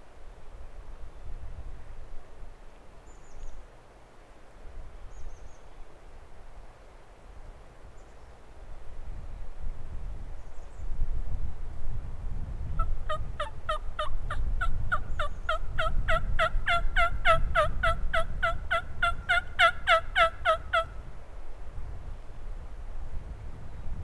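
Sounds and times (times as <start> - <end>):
wind rumble on microphone: 0.0 - 3.6, 8.6 - 24.0
turkey yelps: 12.8 - 20.9.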